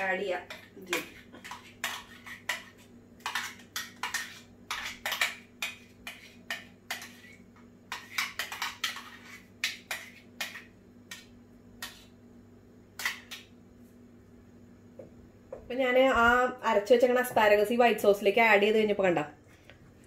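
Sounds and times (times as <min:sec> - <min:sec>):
steady low hum: 0:00.0 - 0:18.1
spoon scraping and tapping bowl: 0:00.4 - 0:12.2, 0:13.0 - 0:13.5.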